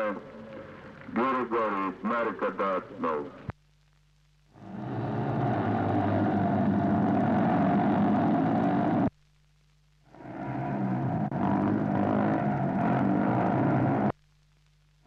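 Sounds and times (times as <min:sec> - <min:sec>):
motorcycles racing at high revs: 0:04.6 - 0:09.1, 0:10.2 - 0:14.1.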